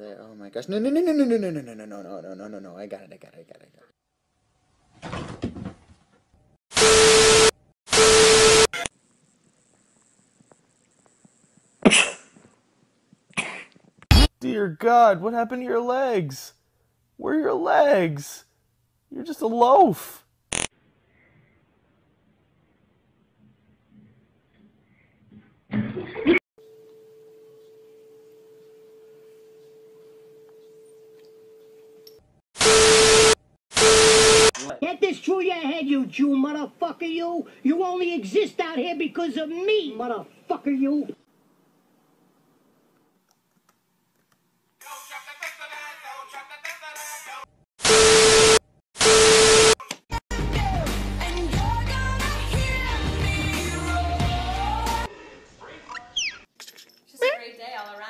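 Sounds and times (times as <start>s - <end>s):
static bursts: 6.7s - 12.0s, 20.5s - 20.7s, 32.6s - 34.6s, 47.8s - 49.8s
faint pure tone: 26.6s - 32.2s.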